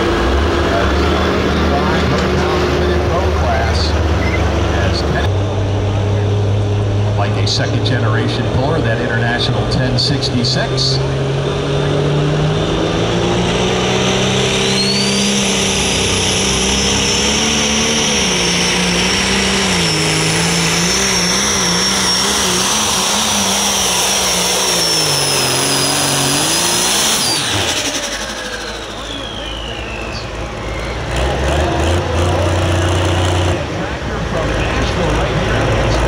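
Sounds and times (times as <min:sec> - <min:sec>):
diesel engine running hard: 0:00.0 - 0:36.0
high turbo whistle: 0:13.8 - 0:31.4.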